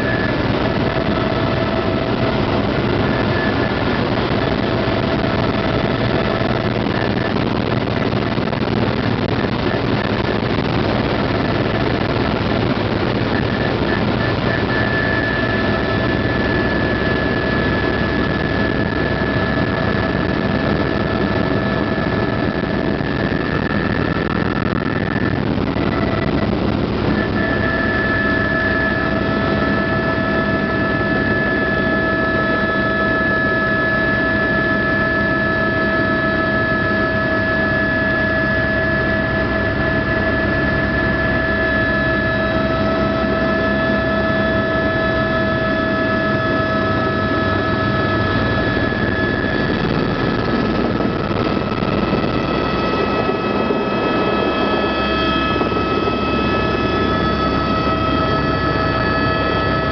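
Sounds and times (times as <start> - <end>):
helicopter rotor and turbine drone: 0.0 - 59.9
high whine: 0.0 - 59.9.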